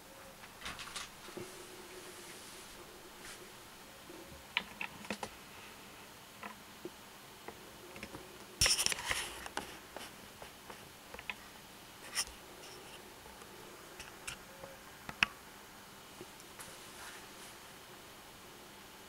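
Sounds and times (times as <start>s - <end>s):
small clicks and ticks: 6.4s - 11.5s.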